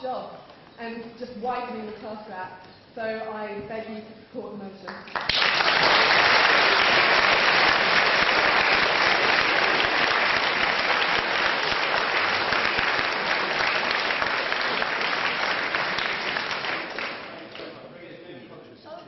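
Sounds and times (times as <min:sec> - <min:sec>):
audience applauding: 0:05.1 - 0:17.8.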